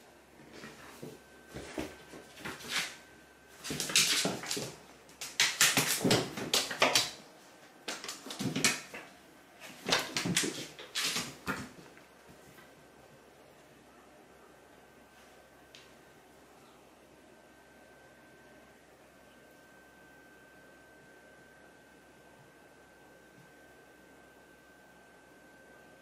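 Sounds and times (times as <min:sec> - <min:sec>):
cats scrambling on hard floor: 0:03.6 - 0:07.2, 0:07.9 - 0:09.1, 0:09.7 - 0:12.0.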